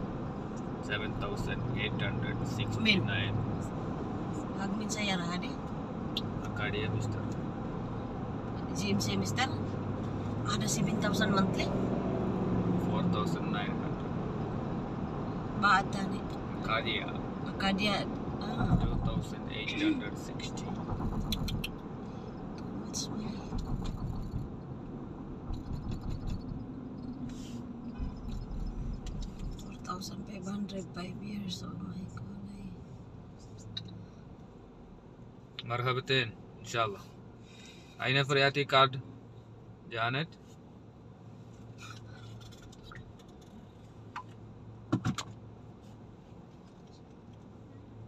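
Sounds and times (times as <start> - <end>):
car cabin road and engine noise: 0.0 - 48.0
car cabin hum: 15.6 - 32.6.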